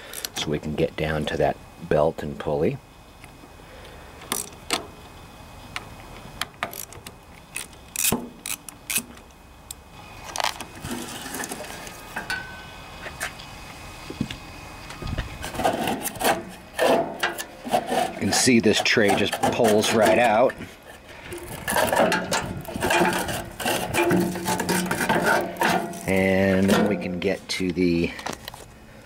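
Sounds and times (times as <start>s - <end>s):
knocks and scrapes: 10.4s - 12.3s, 15.0s - 27.4s.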